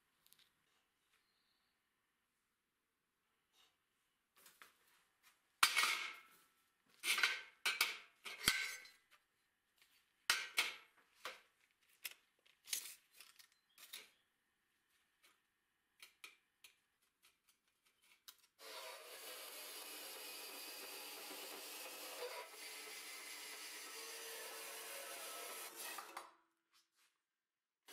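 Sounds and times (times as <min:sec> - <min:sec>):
band saw running: 0:18.6 - 0:26.3.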